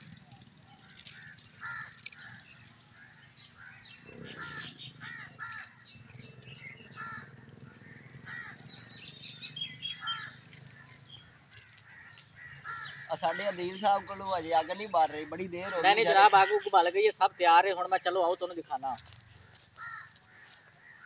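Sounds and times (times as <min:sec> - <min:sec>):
small birds chirping: 0:00.0 - 0:21.0
crows cawing: 0:00.8 - 0:05.9, 0:06.9 - 0:09.1, 0:09.7 - 0:17.0, 0:19.8 - 0:21.0.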